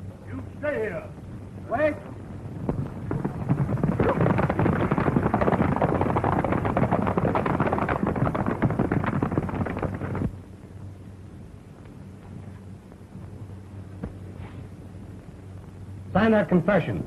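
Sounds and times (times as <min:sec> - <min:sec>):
horses galloping hoofbeats: 0:02.6 - 0:10.4.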